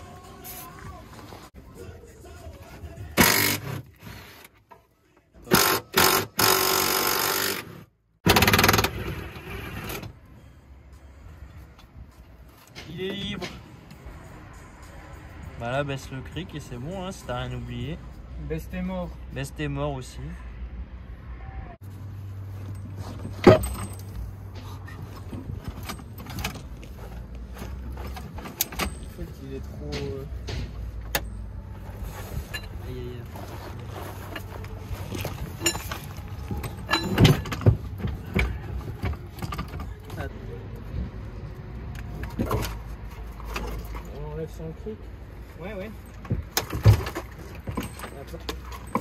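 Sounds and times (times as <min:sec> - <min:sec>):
metallic clinks: 0:22.6 - 0:26.8, 0:35.3 - 0:37.7.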